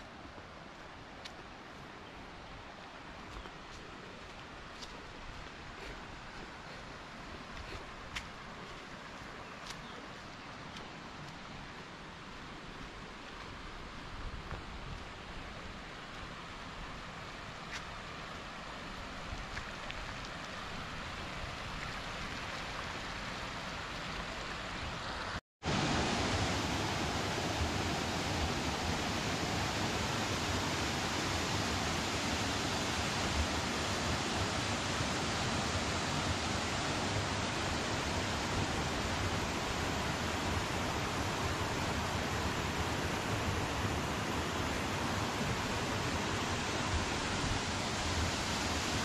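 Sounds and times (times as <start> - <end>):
waterfall rushing water: 20.6 - 49.0.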